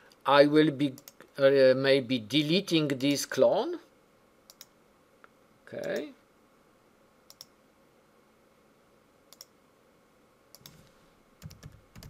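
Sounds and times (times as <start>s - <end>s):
computer mouse clicks: 1.0s - 1.3s, 4.5s - 4.8s, 7.3s - 7.6s, 9.3s - 9.6s, 10.5s - 12.0s
keyboard typing: 10.5s - 12.0s.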